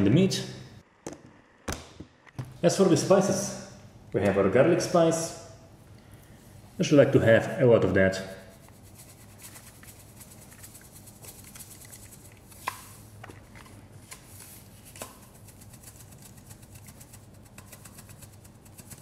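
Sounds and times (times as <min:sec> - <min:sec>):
spice shaker rattling: 0:08.5 - 0:13.2, 0:14.7 - 0:19.0.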